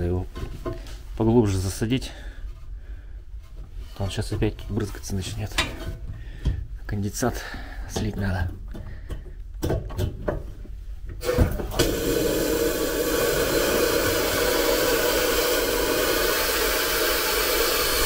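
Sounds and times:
compressed air hissing: 11.2s - 18.0s.

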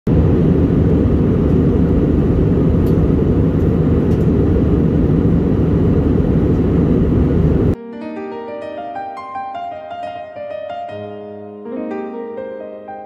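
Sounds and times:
airliner cabin engine roar: 0.1s - 7.8s.

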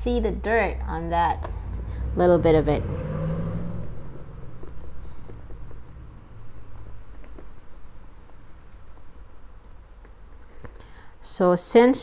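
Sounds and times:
cloth rubbing on a handbag: 3.7s - 10.5s.

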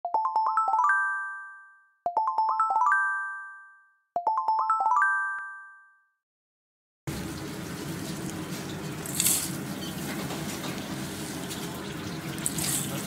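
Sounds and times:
bell-like chime jingle: 0.1s - 6.1s.

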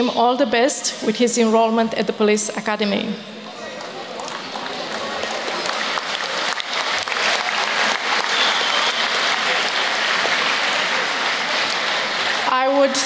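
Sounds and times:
audience clapping: 3.4s - 13.0s.

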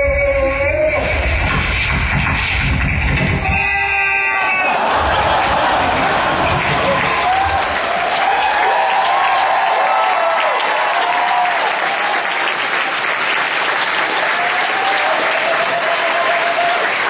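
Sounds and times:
whoops and shouts: 3.4s - 6.1s, 6.8s - 12.1s
audience applauding: 4.2s - 17.0s.

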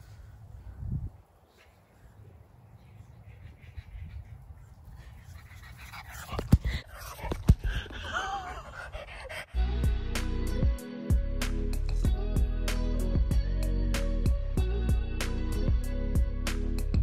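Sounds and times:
puppy panting and snuffling: 3.3s - 9.6s
music: 9.5s - 17.0s.

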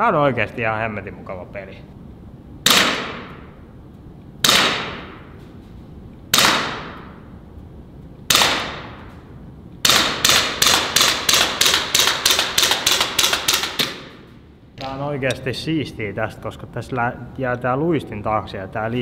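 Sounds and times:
air pistol shots: 2.6s - 3.5s, 4.4s - 5.3s, 6.3s - 7.2s, 8.3s - 9.1s, 9.8s - 14.3s.

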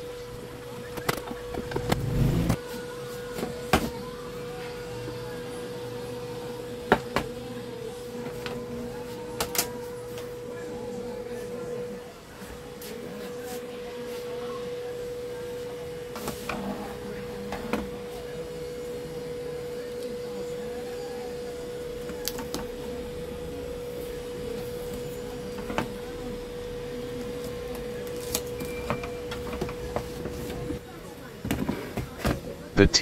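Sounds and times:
steady hum: 0.0s - 2.6s.

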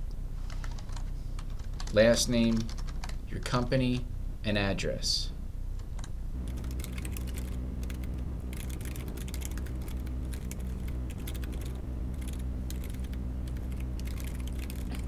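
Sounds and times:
keyboard typing: 0.6s - 3.2s, 6.0s - 15.0s
low hum: 5.2s - 15.0s.

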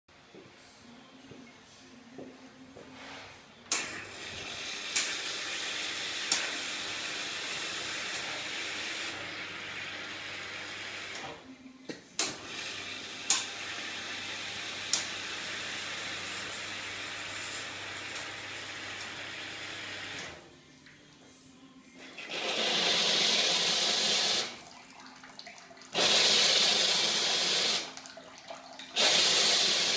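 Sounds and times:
hot water hissing and splashing: 25.9s - 29.9s.

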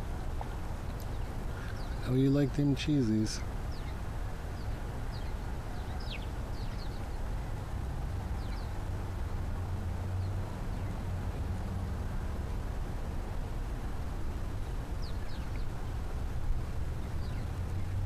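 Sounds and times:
low outdoor rumble: 0.0s - 18.0s
small birds chirping: 0.4s - 9.4s, 10.0s - 11.2s, 14.5s - 18.0s.

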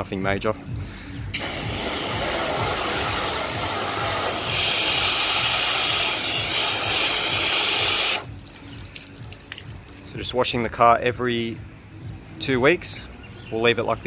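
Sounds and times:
hose water spraying on car: 1.4s - 9.9s.

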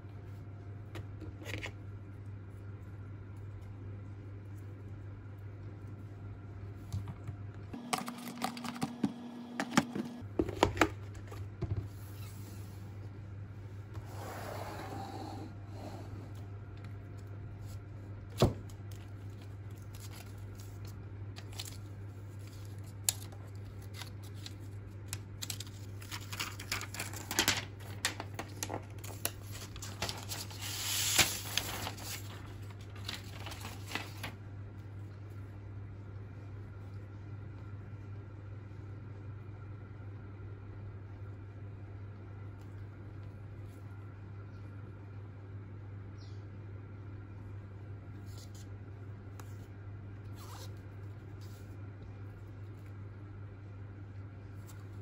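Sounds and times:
steady low hum: 0.0s - 55.0s
paper rustling and tearing: 19.3s - 34.4s.

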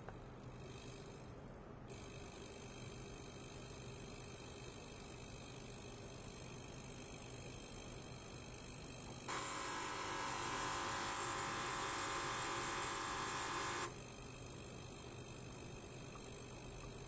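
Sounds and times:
ultrasonic cleaner buzzing hiss: 9.3s - 14.0s.

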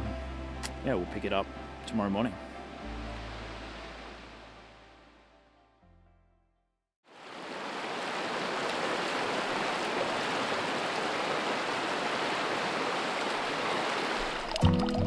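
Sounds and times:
river rushing over rocks: 7.1s - 14.6s.

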